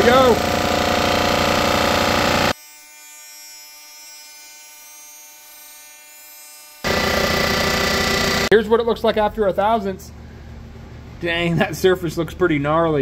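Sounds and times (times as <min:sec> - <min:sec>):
surfacing machine cutter spinning: 0:00.0 - 0:02.6, 0:06.8 - 0:08.5.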